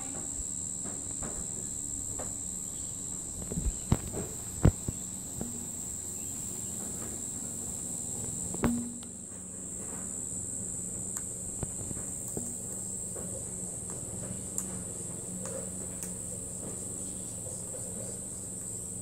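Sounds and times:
high-pitched insect chorus: 0.0 - 19.0
sharp taps and knocks: 3.0 - 5.9, 8.2 - 10.1.

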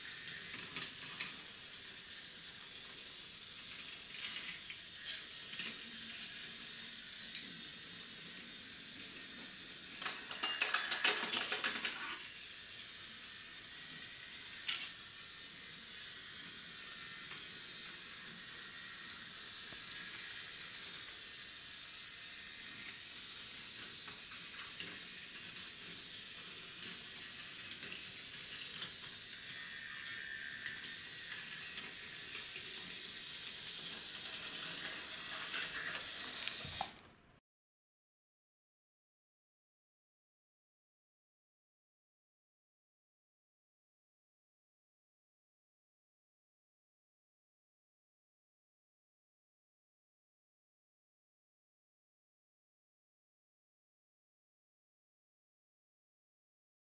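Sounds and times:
toy train hissing with light clicks: 0.0 - 37.1
clattering rattle: 10.0 - 12.2.

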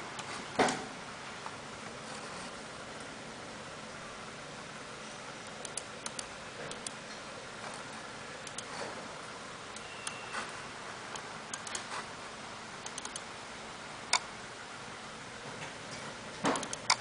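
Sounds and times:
computer mouse clicks: 5.4 - 7.0, 7.6 - 8.8, 11.1 - 12.0, 12.8 - 13.3, 16.5 - 17.0.

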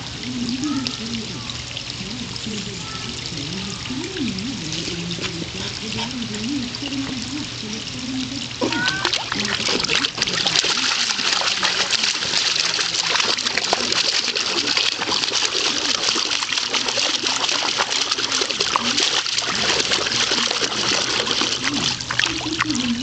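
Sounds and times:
dog splashing in water: 8.7 - 23.0.

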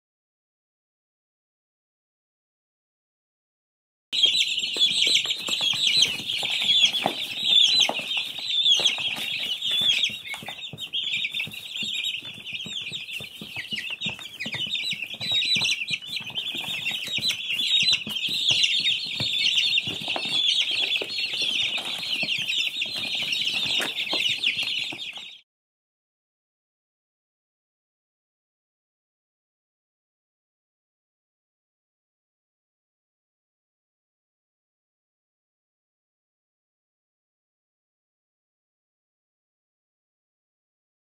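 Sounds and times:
baby chicks peeping: 4.2 - 25.4.

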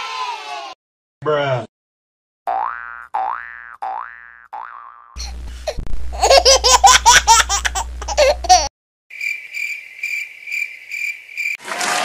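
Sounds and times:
low hum: 5.2 - 6.3, 7.0 - 8.6
cricket chirping: 9.1 - 11.6.

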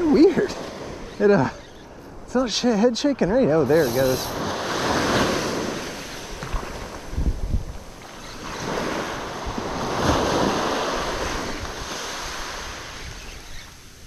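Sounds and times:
waves breaking on a beach: 0.0 - 14.0
wind buffeting microphone: 3.6 - 13.6.

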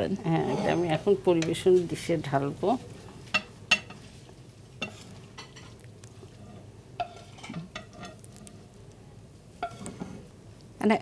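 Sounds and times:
spatula scraping frying pan: 0.3 - 1.9, 3.2 - 8.7, 9.6 - 10.3.

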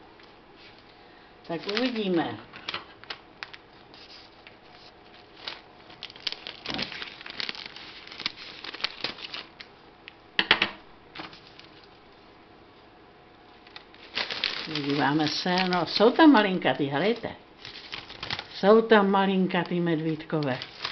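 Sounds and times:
plastic snack bag crinkling: 1.5 - 3.7, 5.2 - 9.6, 13.6 - 16.4, 17.1 - 18.6, 19.6 - 20.9.

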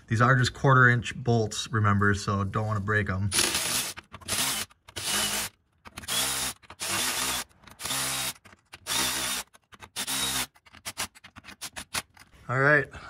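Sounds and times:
cordless ratchet motor whining: 3.4 - 11.0.

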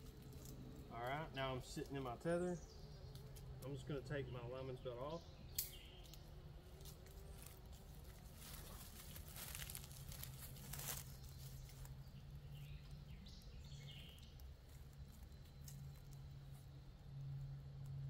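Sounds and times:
faint low hum: 0.0 - 18.0
bird chirps: 1.7 - 6.4, 9.5 - 16.6
rope and gear rustling: 6.7 - 12.2.

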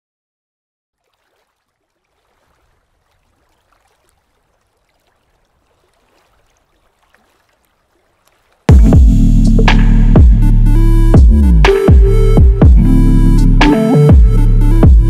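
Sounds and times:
lake water lapping: 0.9 - 8.8.

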